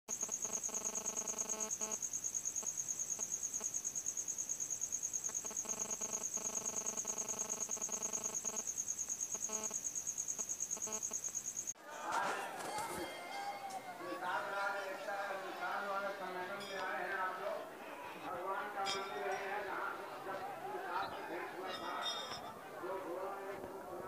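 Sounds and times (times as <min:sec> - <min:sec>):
cricket trilling: 0:00.1 - 0:11.8
faint steady tones: 0:00.1 - 0:24.0.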